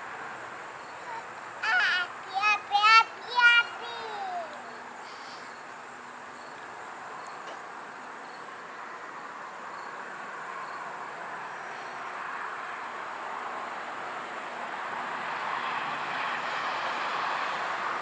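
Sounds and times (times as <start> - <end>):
faint insect chirp: 0.0 - 13.4.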